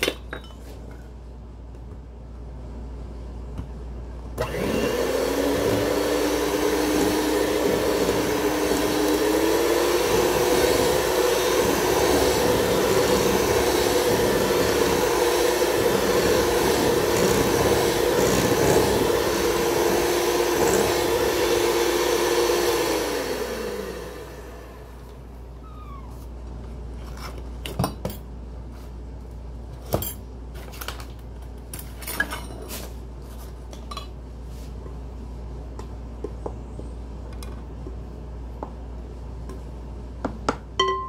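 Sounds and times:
electric hand mixer whining: 4.4 - 24.9.

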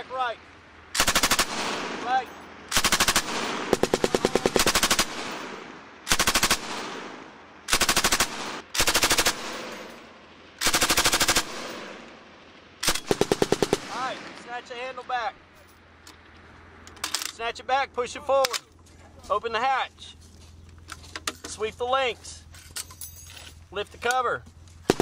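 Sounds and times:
machine gun automatic bursts: 1.0 - 2.1, 2.7 - 7.1, 7.7 - 10.0, 10.6 - 12.0, 12.8 - 14.1.

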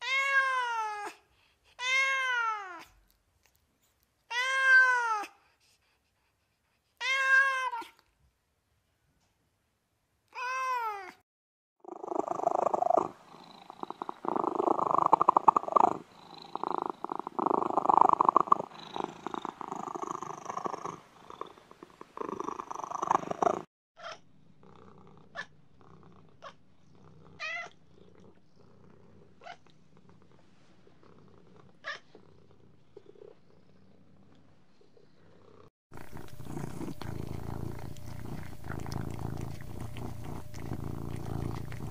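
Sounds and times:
cat meowing: 0.0 - 1.2, 1.8 - 3.0, 4.3 - 5.3, 7.0 - 8.0, 10.3 - 11.2
cat purring loudly: 11.8 - 23.7, 24.5 - 41.9.

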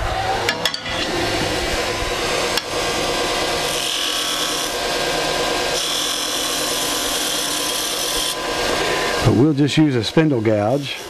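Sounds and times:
wood lathe running: 0.0 - 11.0
turning tool scraping wood: 2.5 - 11.0.

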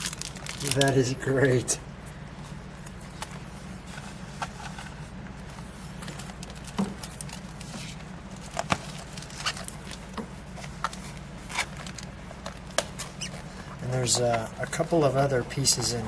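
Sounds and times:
plastic pouch handled: 0.0 - 1.2
steady low hum: 0.0 - 16.0.

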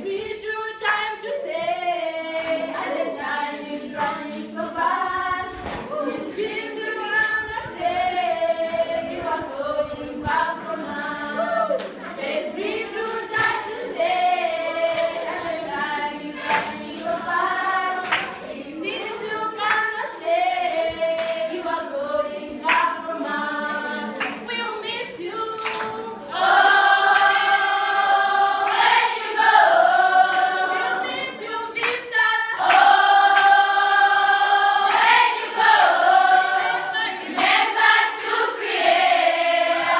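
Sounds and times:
girls choir singing: 0.0 - 39.9
sharp claps: 18.0 - 18.4, 19.6 - 20.0, 21.1 - 21.5, 24.2 - 24.4, 25.6 - 26.0, 31.8 - 32.0.

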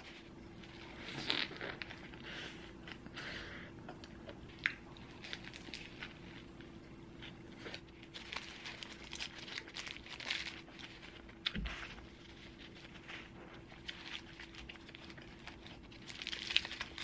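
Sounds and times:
sandwich being chewed: 3.9 - 17.0
paper wrapper crinkling: 5.0 - 6.6, 7.2 - 17.0.

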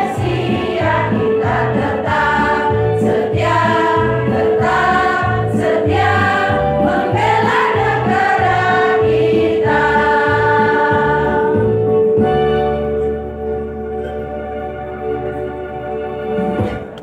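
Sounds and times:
women's choir singing: 0.0 - 11.8.

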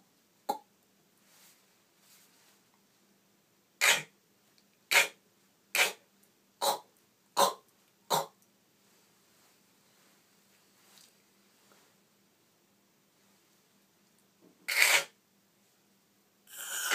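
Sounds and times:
beatbox percussion hits: 3.8 - 4.1, 4.9 - 5.2, 5.8 - 6.0, 6.6 - 8.3.

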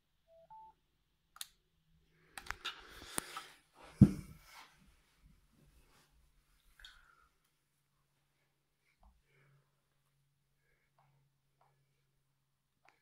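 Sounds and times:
headphones thumping on towel: 3.9 - 4.5.

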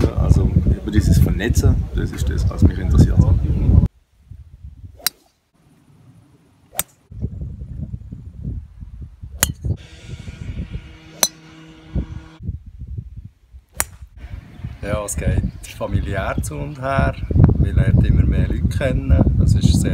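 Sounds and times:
low wind rumble on microphone: 0.0 - 5.1, 7.0 - 19.9
golf club striking ball: 5.0 - 5.3, 6.7 - 7.0, 9.4 - 10.0, 11.0 - 12.0, 13.8 - 14.1.

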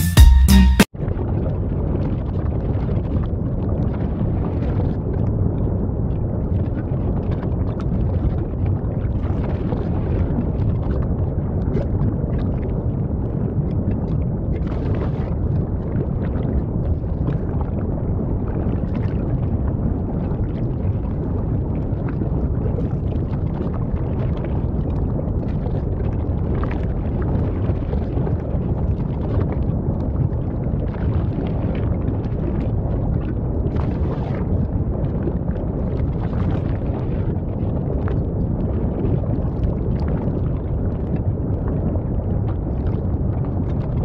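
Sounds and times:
lava crackles and pops: 1.0 - 44.0
lava eruption rumble: 1.0 - 44.0.

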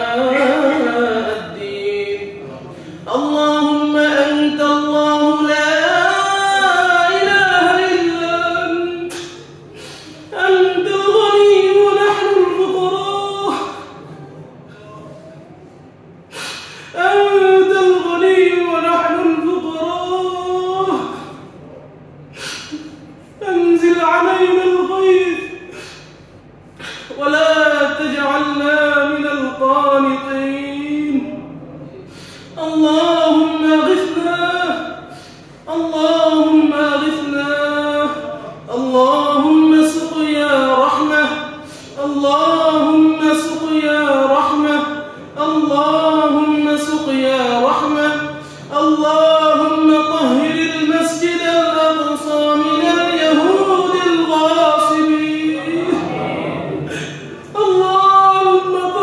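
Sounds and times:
man chanting melodically: 0.0 - 15.8, 16.9 - 21.8, 22.7 - 59.0
sharp intake of breath: 9.1 - 10.3, 14.7 - 17.0, 22.3 - 23.2, 25.7 - 27.2, 32.0 - 32.6, 35.1 - 35.7.

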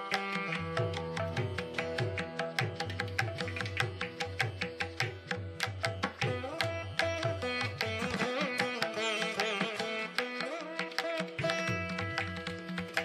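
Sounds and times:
string melody with bending notes: 0.0 - 13.0
hand drum beat: 0.7 - 6.7.

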